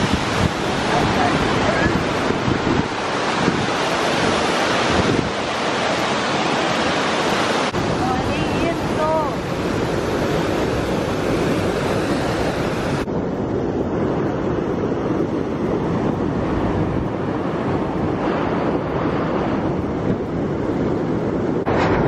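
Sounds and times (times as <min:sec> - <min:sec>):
water rushing over rocks: 0:00.0 - 0:13.1
wind on microphone: 0:00.0 - 0:22.0.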